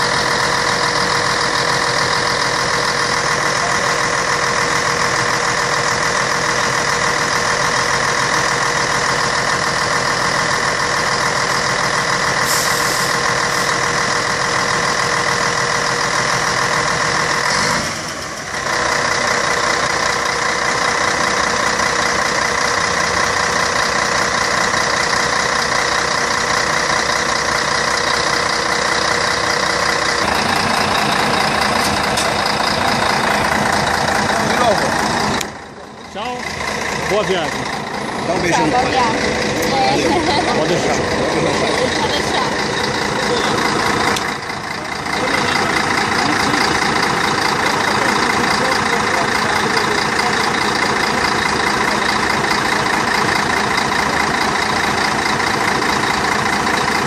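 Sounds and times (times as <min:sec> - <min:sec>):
diesel engine idling: 0:00.0 - 0:57.0.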